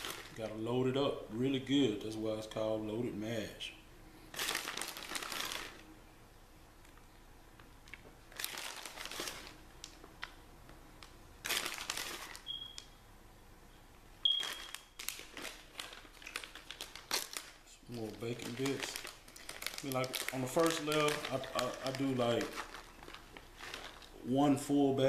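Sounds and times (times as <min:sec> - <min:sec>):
plastic bag crinkling: 0:00.0 - 0:00.6, 0:04.3 - 0:05.8, 0:07.8 - 0:10.4, 0:11.0 - 0:12.8, 0:14.2 - 0:24.3.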